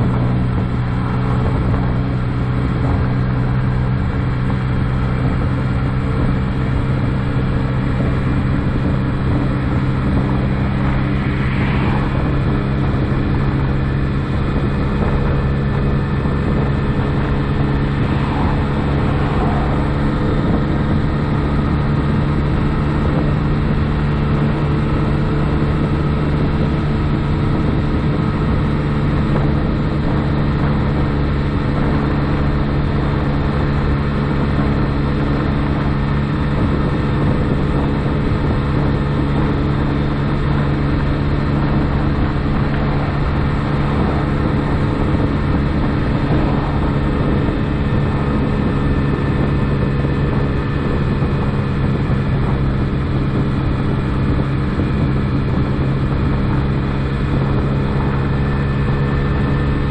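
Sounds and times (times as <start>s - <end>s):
road noise: 0.0s - 59.9s
scooter engine running: 0.0s - 59.9s.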